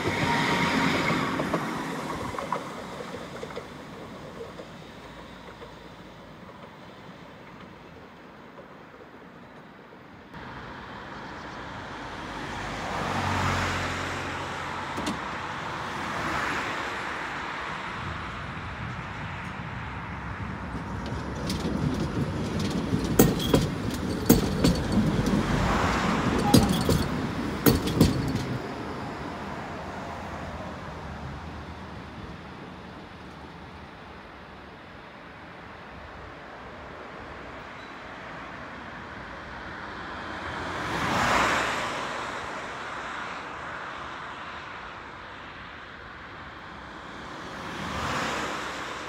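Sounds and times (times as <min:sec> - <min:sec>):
vehicles passing: 0:00.0 - 0:08.9, 0:10.2 - 0:49.0
tram wheels clacking on rails: 0:00.0 - 0:10.1, 0:19.4 - 0:29.5
tram rumbling past: 0:00.0 - 0:49.0.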